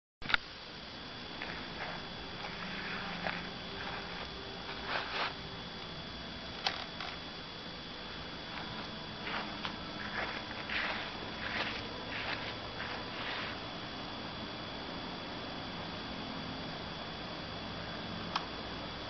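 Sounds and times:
electric fans humming and whirring: 0:00.2 - 0:19.0.

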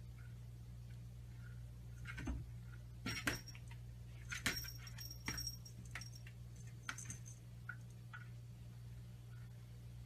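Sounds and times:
cat collar bell jingling: 0:03.4 - 0:07.4.

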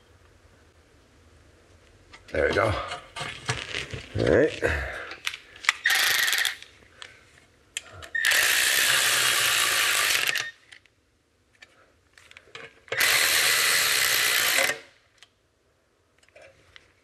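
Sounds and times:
cordless ratchet running: 0:05.9 - 0:06.6, 0:08.2 - 0:10.5, 0:13.0 - 0:14.8.

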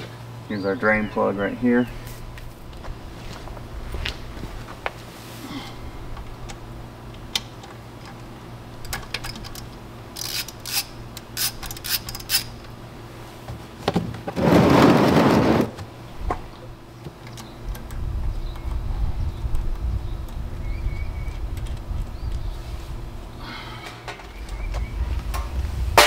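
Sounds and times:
metallic ratchet clicks: 0:09.2 - 0:12.5
low rumble: 0:18.0 - 0:26.0.

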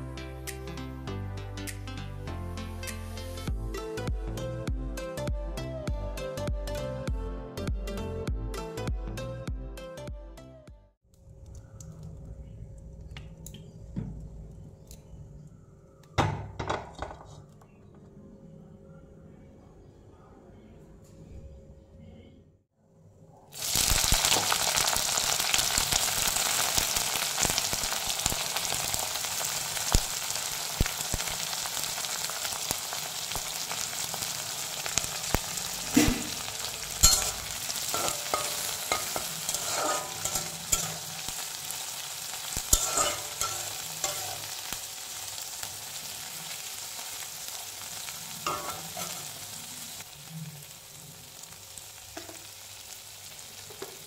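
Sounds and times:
food sizzling in hot oil: 0:23.5 - 0:54.0
spatula scraping a pan: 0:37.0 - 0:41.1, 0:42.7 - 0:44.5.

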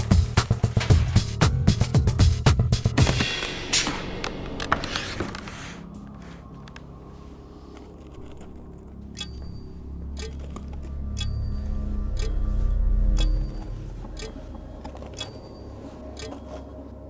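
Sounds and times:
music cue: 0:09.0 - 0:17.0
sharp ringing ticks: 0:09.1 - 0:16.8.

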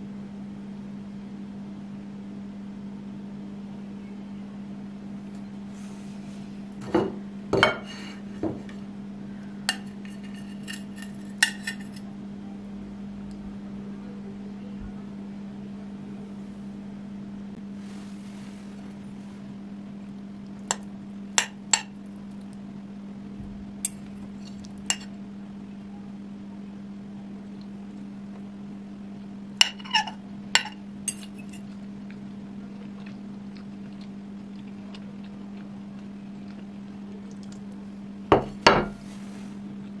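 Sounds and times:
steady low hum: 0:00.0 - 0:40.0
fork clinking on ceramic plate: 0:09.7 - 0:12.0, 0:23.9 - 0:25.1, 0:29.6 - 0:31.7.

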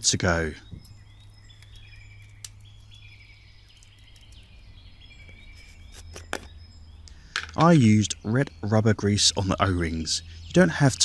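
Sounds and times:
birds chirping faintly: 0:00.0 - 0:11.0
sharp clicks: 0:00.8 - 0:02.7.

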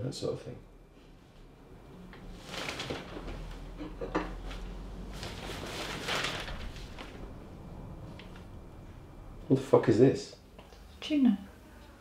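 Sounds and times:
paper rustling: 0:02.3 - 0:03.7, 0:04.4 - 0:07.4.

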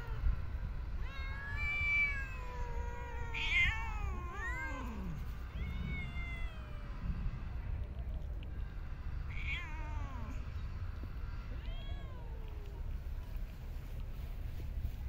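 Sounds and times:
cats meowing: 0:00.0 - 0:07.2, 0:09.2 - 0:10.5, 0:11.4 - 0:13.1
low steady rumble: 0:00.0 - 0:15.0.

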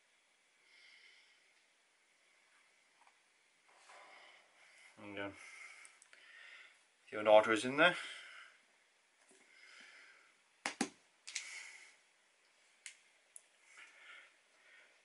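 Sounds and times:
soft handling noise: 0:02.4 - 0:05.2.

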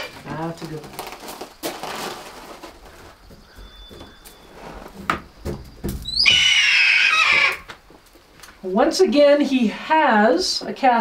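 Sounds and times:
hawk screaming: 0:06.1 - 0:07.7.

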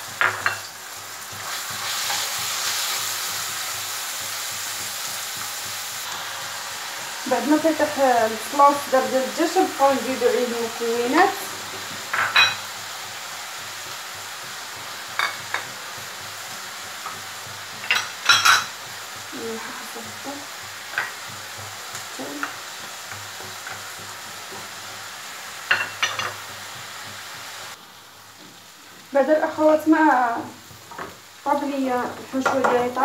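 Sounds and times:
food sizzling in a frying pan: 0:00.0 - 0:33.0
wooden spoon stirring in a pan: 0:00.0 - 0:33.0
bowl and spoon clinking on pan: 0:12.1 - 0:12.7.

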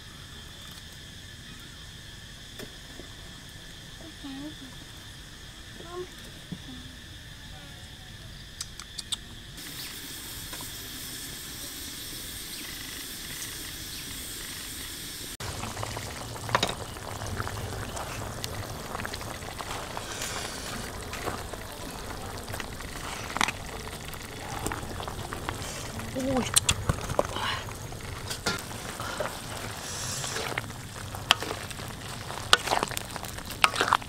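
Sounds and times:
sharp clicks: 0:08.6 - 0:09.3
broth boiling in a wok: 0:09.5 - 0:34.0.

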